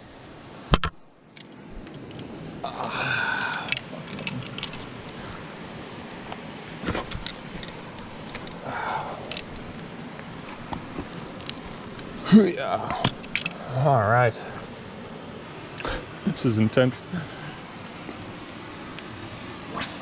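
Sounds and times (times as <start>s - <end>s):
steady noisy background: 0.0s - 20.0s
rustling clothing and gear: 3.3s - 13.6s
scuffs and small knocks: 6.3s - 8.6s.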